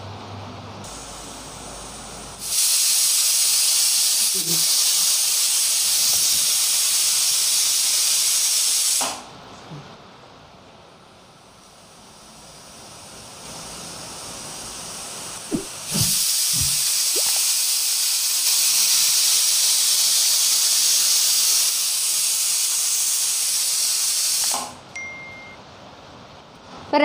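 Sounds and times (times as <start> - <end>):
steam hissing: 0.8 - 9.2, 11.4 - 24.7
pressure weight knocking: 15.5 - 16.8.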